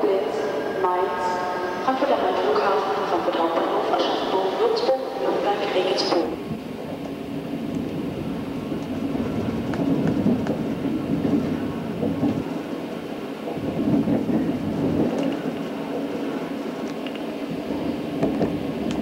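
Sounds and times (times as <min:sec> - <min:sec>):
train rumble inside carriage: 0:00.0 - 0:19.0
train wheels clicking: 0:08.7 - 0:19.0.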